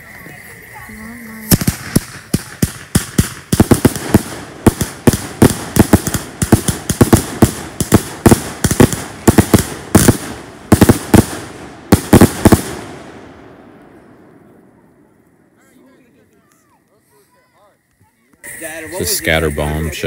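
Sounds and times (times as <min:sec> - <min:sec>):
fireworks barrage of sharp bangs: 0:01.3 - 0:14.6.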